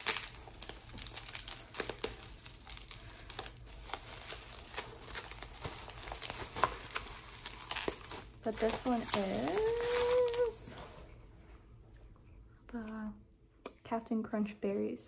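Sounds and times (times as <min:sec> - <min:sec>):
bubble wrap cracks: 0:00.0 - 0:10.7
bubble wrap crinkling: 0:00.0 - 0:11.0.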